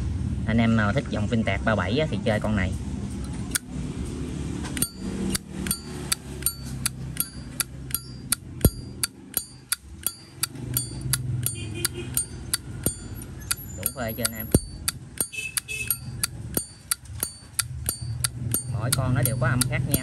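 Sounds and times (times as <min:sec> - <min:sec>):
lighter lid clicking with ring: 0:04.8 - 0:19.7.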